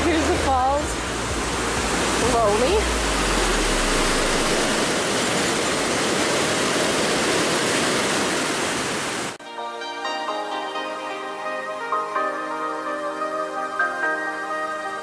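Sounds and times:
soft music: 0.0s - 4.8s, 9.4s - 15.0s
waterfall roaring: 0.0s - 9.4s.

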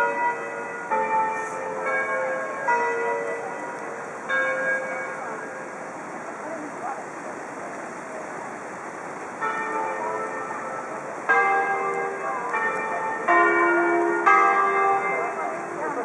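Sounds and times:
church bells ringing: 0.0s - 6.5s, 9.2s - 16.0s.

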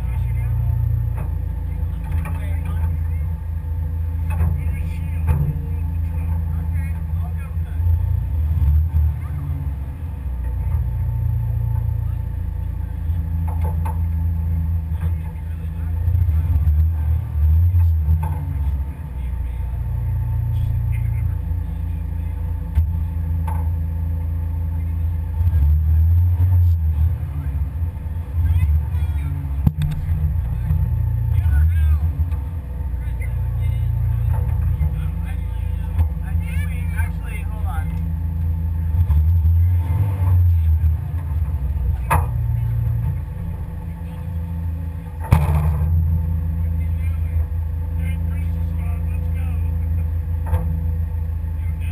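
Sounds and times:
faint steady whine: 0.0s - 51.9s
vehicle engine rumbling: 0.0s - 51.9s
loud thump: 45.2s - 46.2s.

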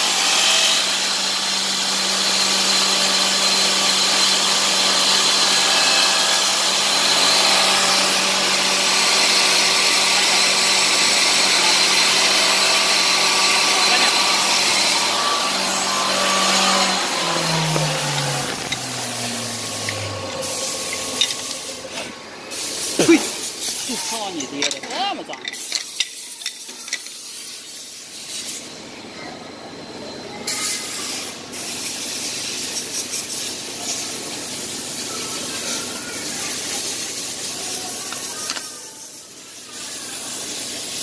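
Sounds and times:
cutter heads hissing through wood: 0.0s - 24.6s
wood shaper machine humming: 0.0s - 24.7s.

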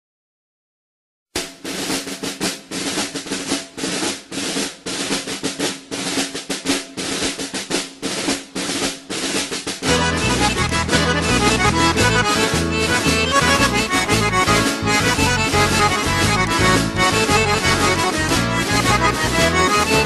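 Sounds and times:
snare drum rolling: 1.4s - 20.0s
band playing with bass line: 5.9s - 20.0s.

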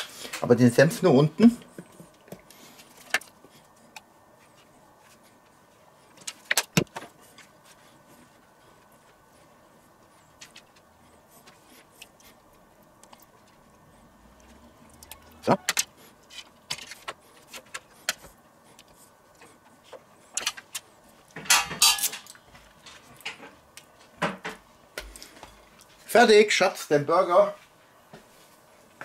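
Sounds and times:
tableware clicking on plates: 21.4s - 22.3s.

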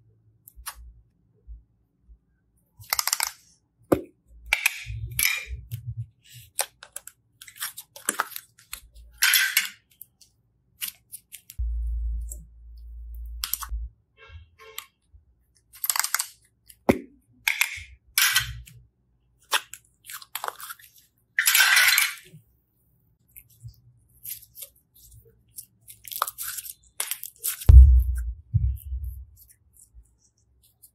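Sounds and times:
low hum: 11.6s - 13.9s, 27.7s - 29.2s.

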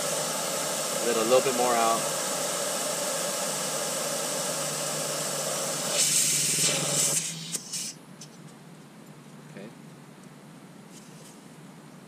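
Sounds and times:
air hissing from tire valve: 0.0s - 8.0s.

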